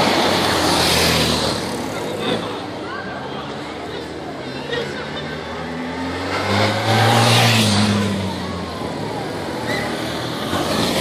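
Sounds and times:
motorcycle engine passing: 0:05.7 - 0:08.6.

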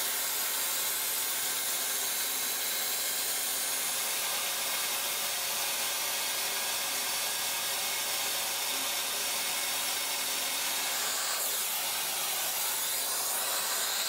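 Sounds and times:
router spindle milling wood: 0:00.0 - 0:14.0
vacuum hose hissing: 0:10.6 - 0:14.0.

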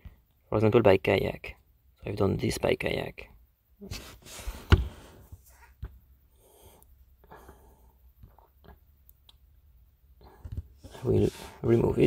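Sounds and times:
breathing close to microphone: 0:06.3 - 0:08.0, 0:10.2 - 0:11.8.

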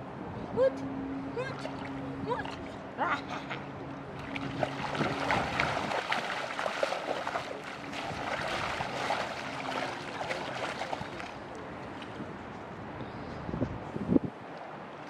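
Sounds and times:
shallow water splashing: 0:04.1 - 0:11.6.

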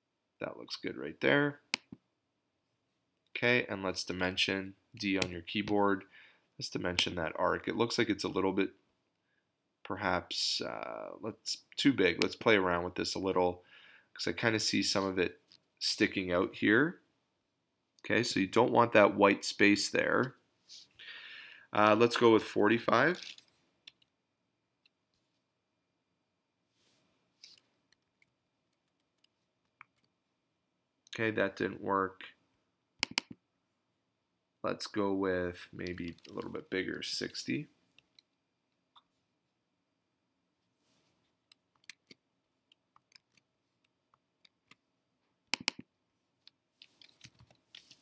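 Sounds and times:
mouse and keyboard clicks: 0:33.0 - 0:33.4, 0:41.5 - 0:44.8, 0:45.5 - 0:45.9.

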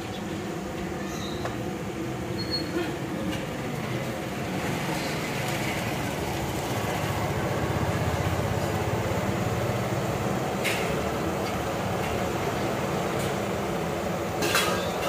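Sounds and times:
gas burner roaring: 0:00.0 - 0:15.0.

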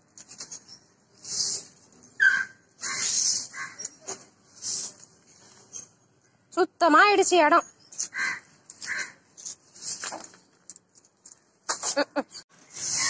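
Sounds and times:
broom sweeping concrete floor: 0:00.2 - 0:02.2, 0:02.8 - 0:05.8, 0:08.7 - 0:10.4, 0:11.7 - 0:13.0.

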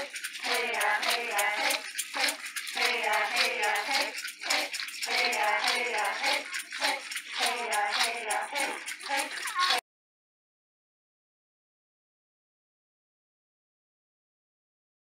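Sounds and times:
hand rattle shaking: 0:00.0 - 0:09.8
voices chanting: 0:00.0 - 0:09.8.

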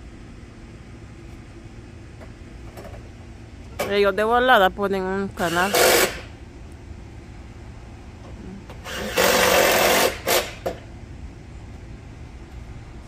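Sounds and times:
low steady rumble: 0:00.0 - 0:09.0, 0:09.9 - 0:13.0
cordless drill whirring: 0:08.8 - 0:10.7.

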